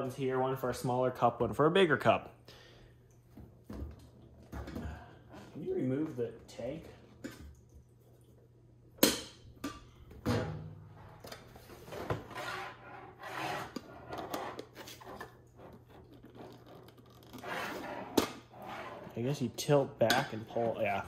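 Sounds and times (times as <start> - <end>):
plastic scraping against plastic: 11.4 - 19.3.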